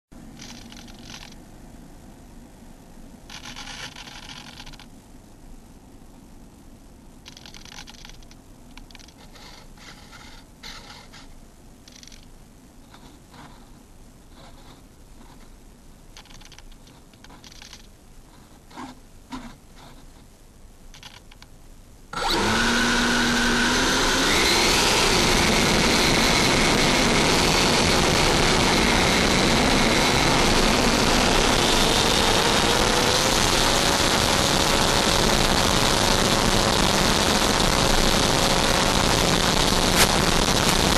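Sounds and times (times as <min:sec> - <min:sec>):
light rubbing and tapping: 0:12.9 - 0:15.6, 0:16.2 - 0:20.4
electric fans rushing and whining: 0:22.1 - 0:40.9.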